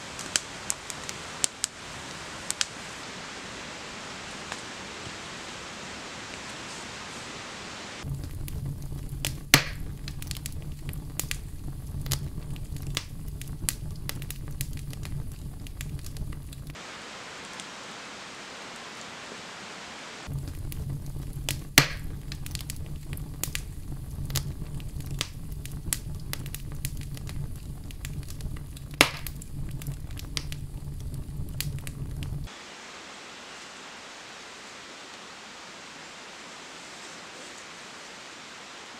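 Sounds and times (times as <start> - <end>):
campfire crackling and popping: 0.0 - 5.6, 8.0 - 17.8, 20.2 - 32.6
steady hiss: 0.0 - 38.9
low rumble: 8.0 - 16.8, 20.3 - 32.5.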